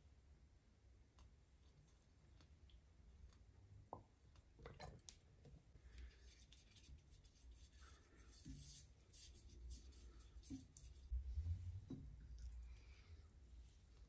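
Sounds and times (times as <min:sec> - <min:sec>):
pastry brush brushing a pan: 0:05.8 - 0:14.0.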